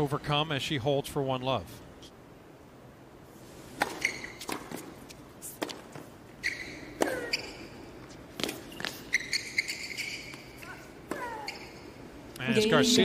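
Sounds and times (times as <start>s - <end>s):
racket striking tennis ball: 3.7s - 7.7s
sneakers squeaking: 3.7s - 12.1s
tennis ball bouncing: 3.8s - 11.8s.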